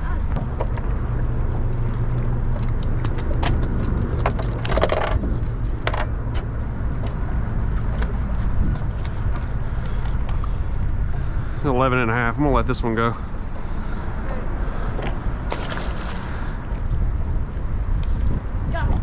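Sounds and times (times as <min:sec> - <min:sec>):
steady low rumble: 0:00.0 - 0:19.0
fish flopping on boat deck: 0:15.4 - 0:16.8.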